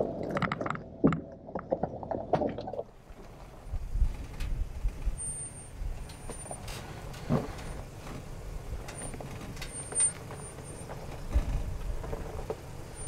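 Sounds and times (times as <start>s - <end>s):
engine rumbling: 0.0s - 13.0s
tyres crunching over rocks: 5.9s - 13.0s.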